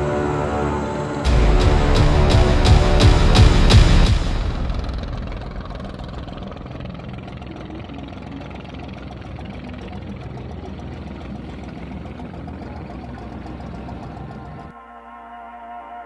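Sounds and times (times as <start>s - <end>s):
boat engine running: 0.0s - 14.8s.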